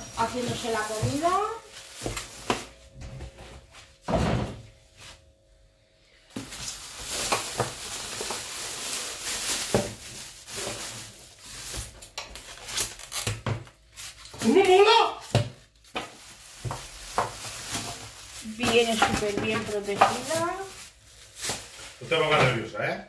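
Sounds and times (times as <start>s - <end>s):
plastic bag crinkling: 0.0s - 2.9s, 6.3s - 22.4s.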